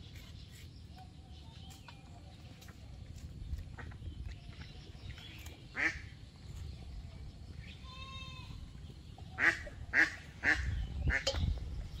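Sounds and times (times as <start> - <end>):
ducks quacking: 5.7 - 6.1, 9.3 - 11.4.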